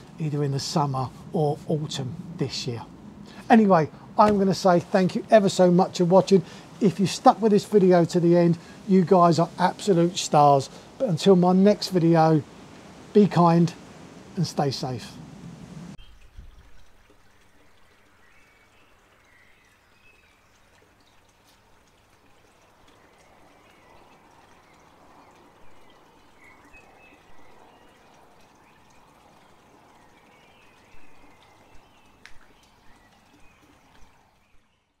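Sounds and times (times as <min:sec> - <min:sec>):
low steady hiss: 0:00.0 - 0:35.0
soft ticks or drips: 0:15.9 - 0:34.7.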